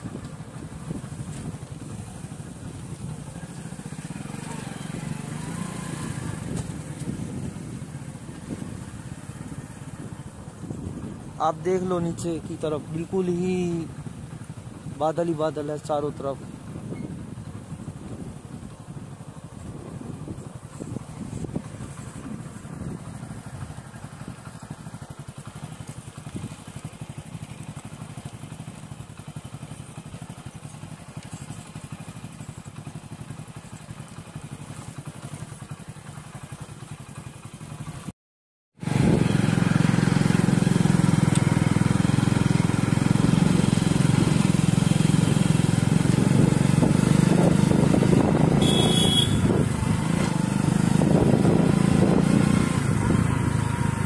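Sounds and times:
motorcycle engine and road rumble: 0.0s - 38.1s, 38.8s - 54.0s
wind noise: 6.1s - 11.4s, 19.6s - 23.7s, 46.0s - 53.5s.

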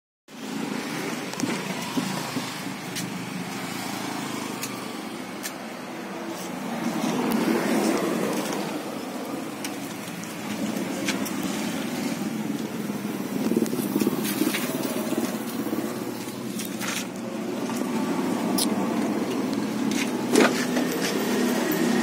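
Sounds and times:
car engine idling: 0.4s - 22.0s.

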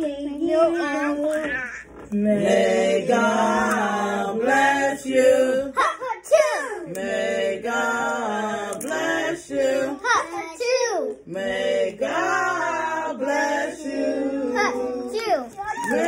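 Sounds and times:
voices singing long held notes: 2.1s - 5.8s, 6.9s - 10.0s, 11.3s - 15.3s.

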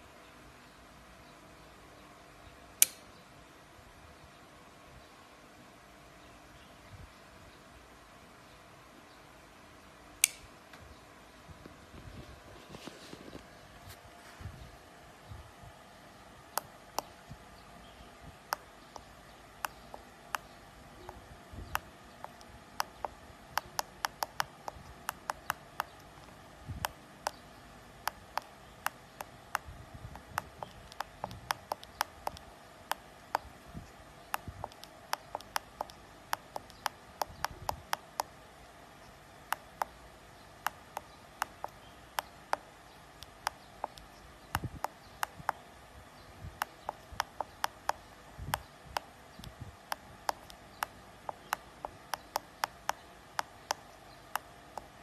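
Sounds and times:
push buttons clicking: 18.5s - 27.4s, 28.0s - 38.3s, 40.6s - 45.6s, 46.6s - 55.0s.

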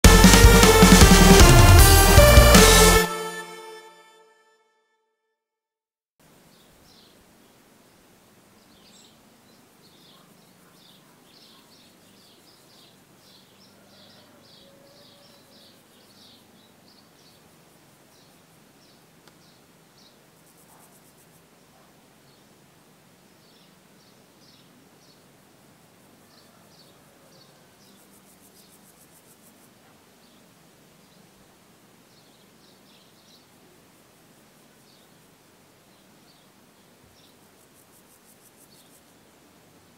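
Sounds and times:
very high buzz: 0.0s - 4.2s
steady hiss: 15.7s - 26.3s, 27.7s - 39.9s.

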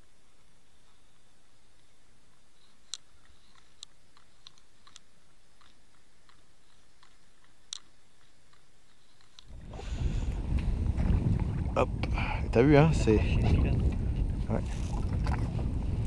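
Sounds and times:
faint steady hiss: 0.0s - 13.8s
sharp underwater clicks: 2.8s - 9.5s.

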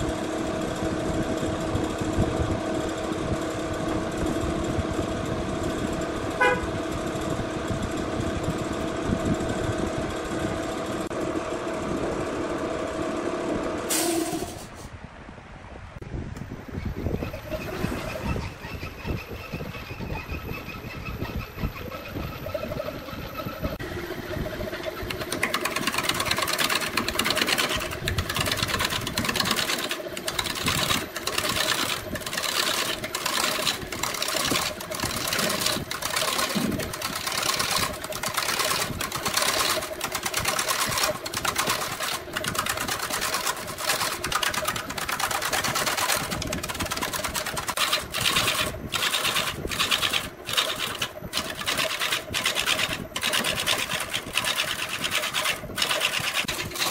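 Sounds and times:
lathe electric motor hum: 0.0s - 14.6s, 17.2s - 56.9s
tool rasping on spinning wood: 17.0s - 56.9s.

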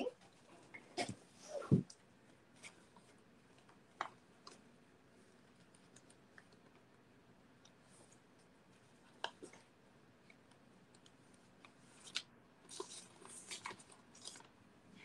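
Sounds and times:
paper and card rustling: 11.7s - 14.5s.

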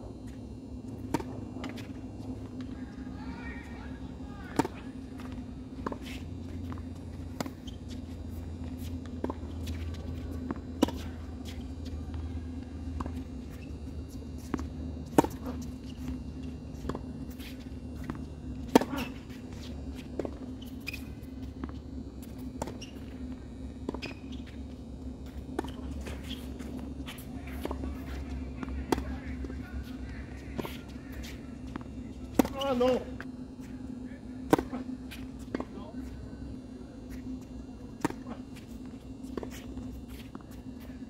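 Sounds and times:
steady low hum: 0.0s - 41.0s
tennis ball bouncing on court: 1.0s - 2.7s, 4.4s - 12.2s, 12.9s - 23.2s, 25.2s - 30.0s, 30.6s - 33.0s, 34.5s - 35.7s, 38.0s - 40.5s.

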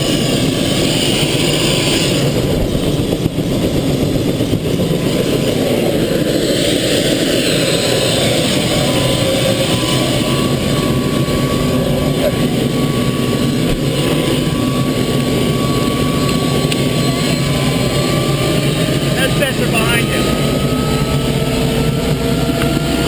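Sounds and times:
helicopter engine and rotor rumble: 0.0s - 23.0s.

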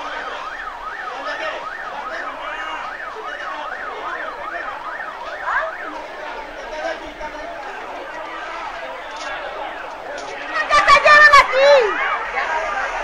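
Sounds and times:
siren yelping: 0.0s - 8.1s.

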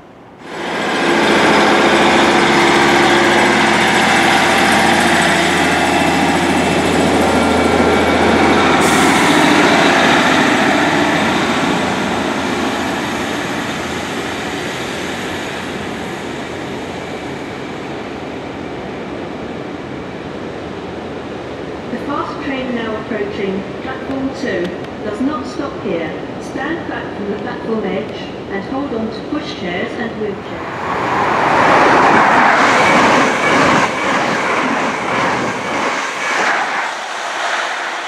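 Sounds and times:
diesel train pulling away: 0.0s - 18.6s, 30.5s - 38.0s
train engine drone: 0.0s - 27.7s, 30.2s - 38.0s.

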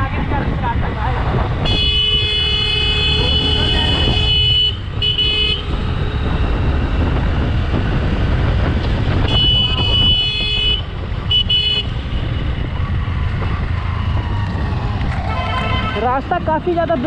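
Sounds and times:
motorcycle engine and wind: 0.0s - 17.0s
high-pitched vehicle horn: 1.7s - 6.0s, 9.2s - 12.4s, 15.2s - 16.3s.

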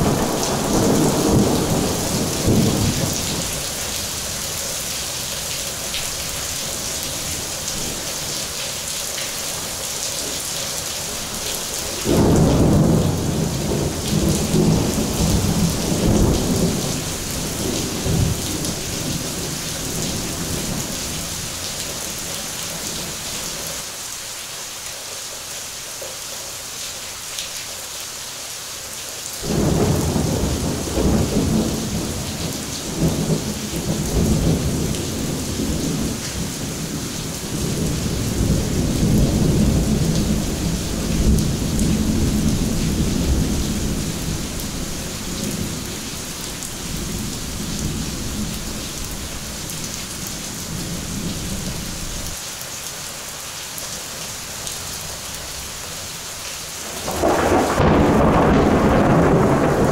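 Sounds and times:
thunderclap rumbling: 0.0s - 3.6s, 12.0s - 20.8s, 29.4s - 36.5s, 56.9s - 59.9s
heavy rain pouring: 0.0s - 59.9s.

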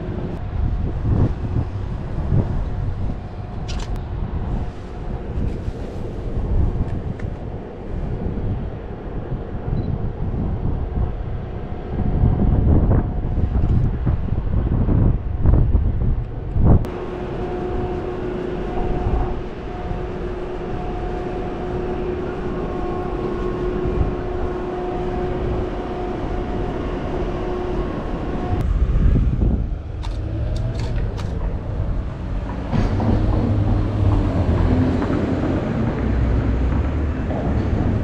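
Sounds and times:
low rumble of traffic: 0.0s - 38.0s
humming machine tone: 16.4s - 38.0s.

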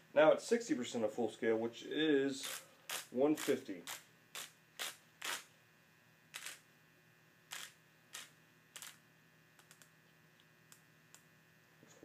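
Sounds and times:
torque wrench handle scraping: 2.4s - 5.4s, 6.4s - 6.6s, 7.5s - 9.0s.

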